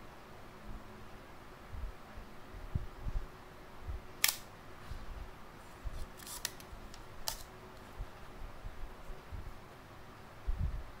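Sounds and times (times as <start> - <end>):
camera shutter clicking: 4.2 - 4.5.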